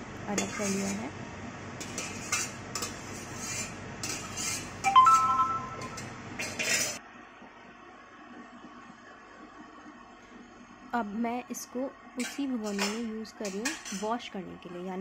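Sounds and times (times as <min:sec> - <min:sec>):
metal spatula scraping bowl: 0:00.4 - 0:01.0, 0:01.8 - 0:04.8, 0:06.4 - 0:07.0
metal bowl ringing: 0:04.9 - 0:06.1.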